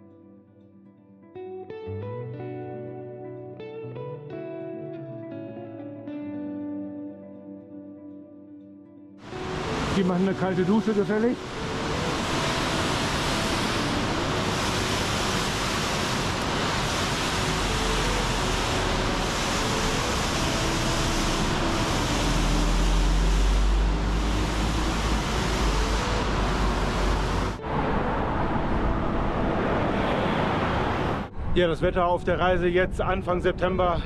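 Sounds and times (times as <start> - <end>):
waterfall rushing: 9.2 - 27.6
road noise: 9.2 - 32.1
wind: 9.2 - 34.0.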